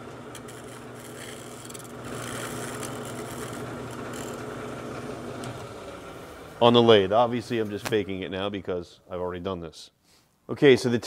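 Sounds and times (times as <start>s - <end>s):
wood lathe motor hum: 0.0s - 6.8s.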